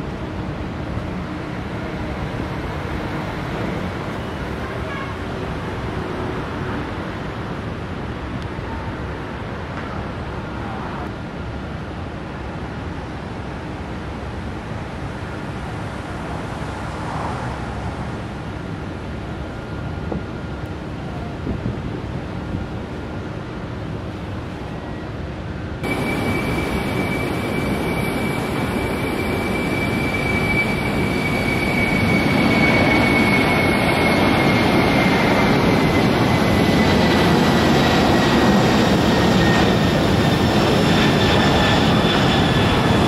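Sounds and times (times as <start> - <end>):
jet engines roaring at takeoff: 0.0 - 12.0, 14.1 - 43.0
wind rumble on microphone: 20.0 - 23.2.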